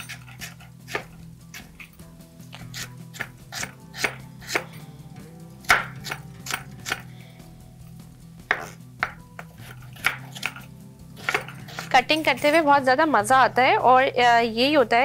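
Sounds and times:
knife chopping on cutting board: 0.0 - 1.9, 2.5 - 4.8, 5.6 - 7.1, 8.5 - 12.0.

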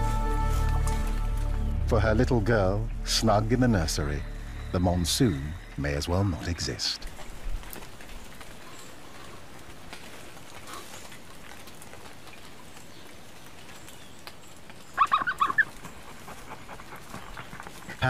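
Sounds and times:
rain falling on foliage: 4.4 - 18.0.

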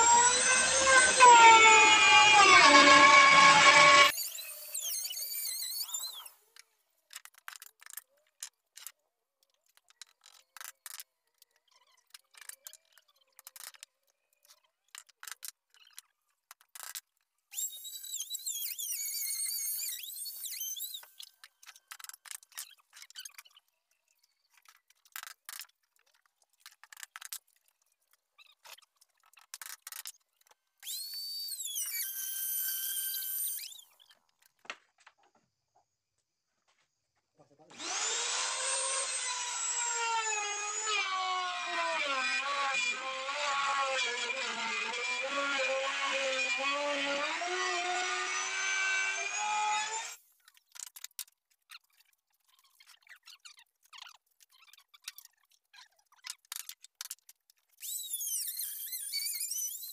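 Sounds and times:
router cutting wood: 0.0 - 6.2, 30.8 - 33.8, 37.7 - 50.2, 57.8 - 59.9.

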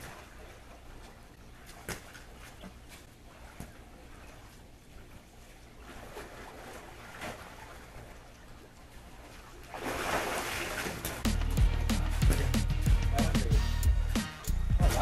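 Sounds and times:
pool water splashing: 0.0 - 15.0
music with a beat: 11.2 - 15.0.

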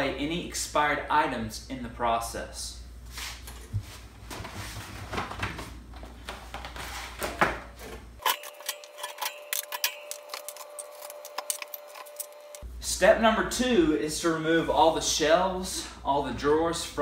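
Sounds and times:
bottles and jars clinking: 8.2 - 12.6.

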